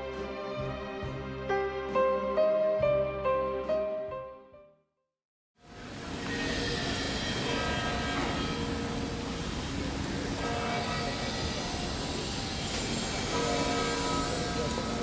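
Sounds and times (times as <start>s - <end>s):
crowd: 9.7s - 15.0s.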